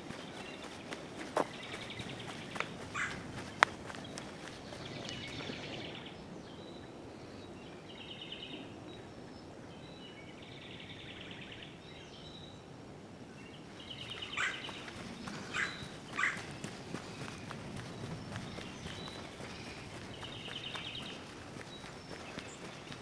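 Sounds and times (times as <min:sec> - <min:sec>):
footsteps on dirt trail: 0:00.0 - 0:05.8, 0:13.9 - 0:23.0
songbirds trilling: 0:00.0 - 0:12.6, 0:13.3 - 0:23.0.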